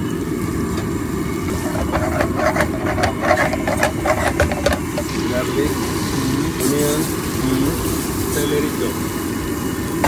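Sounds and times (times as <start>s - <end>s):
ladle scraping frying pan: 1.5s - 5.2s.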